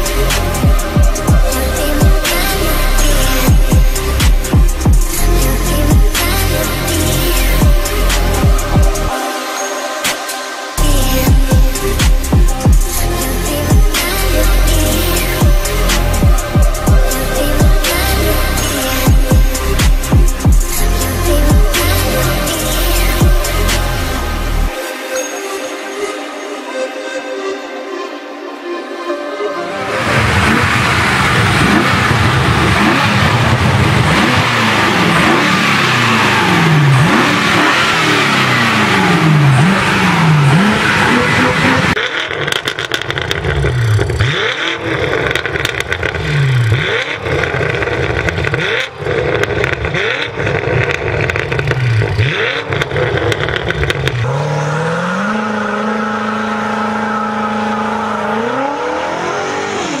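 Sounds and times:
car engine revving: 0.0 - 24.8, 29.8 - 60.0.

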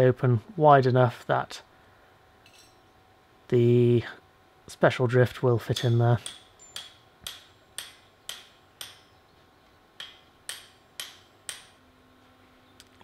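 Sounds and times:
hammer ringing on metal: 5.8 - 9.2, 10.0 - 11.8.

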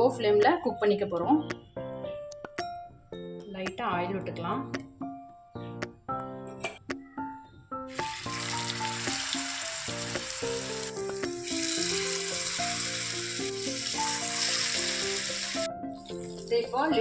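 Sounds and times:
hot oil sizzling in a frying pan: 7.9 - 16.5.

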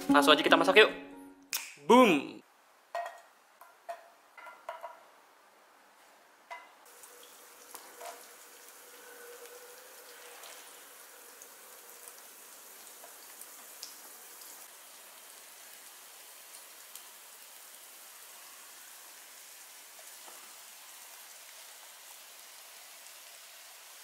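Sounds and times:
oil sizzling in a frying pan: 6.8 - 24.0.

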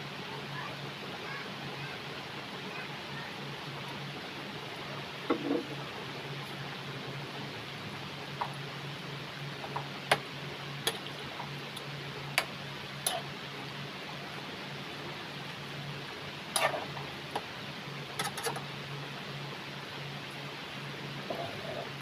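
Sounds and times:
steady hiss and low hum: 0.0 - 22.0.

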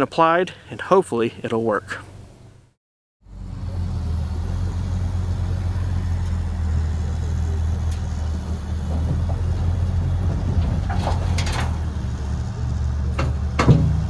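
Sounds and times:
diesel engine droning: 3.2 - 14.0.

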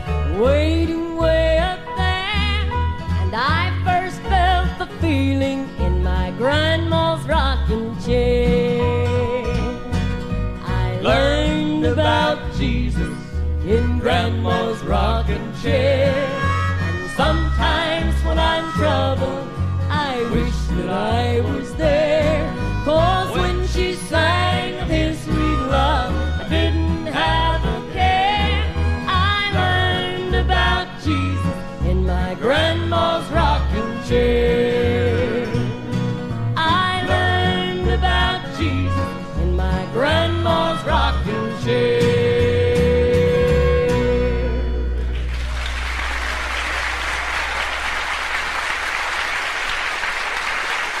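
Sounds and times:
country gospel band music: 0.0 - 51.0
audience applauding: 45.1 - 51.0.

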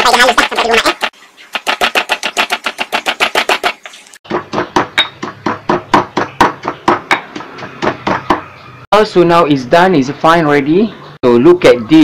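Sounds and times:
stone pestle pounding in mortar: 0.4 - 8.5.

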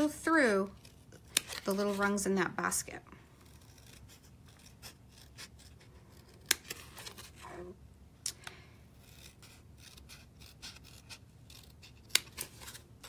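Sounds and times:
scissors snipping cardstock: 0.7 - 2.2, 3.4 - 7.3, 8.3 - 12.8.

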